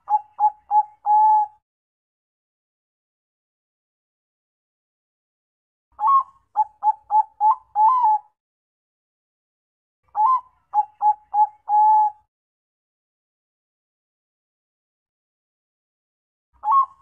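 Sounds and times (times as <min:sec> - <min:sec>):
dove cooing song: 0:00.0 - 0:01.6, 0:06.0 - 0:08.4, 0:10.1 - 0:12.3, 0:16.6 - 0:17.0.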